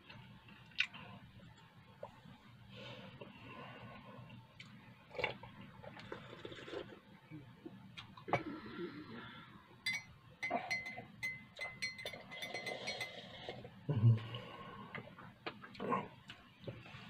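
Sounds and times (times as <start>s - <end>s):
slurping sips of tea: 6.0s - 7.0s.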